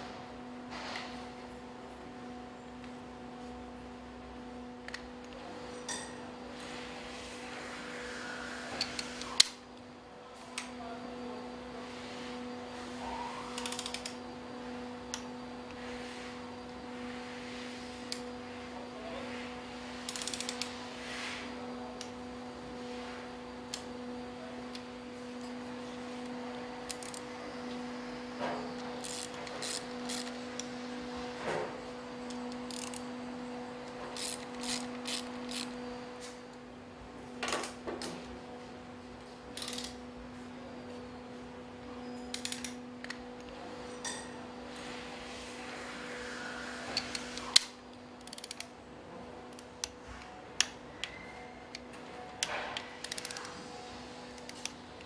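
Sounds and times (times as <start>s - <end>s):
steady low hum: 0.0s - 55.0s
ratchet wrench tightening bolts: 32.7s - 33.0s, 34.2s - 35.7s, 48.2s - 48.7s, 53.0s - 53.4s.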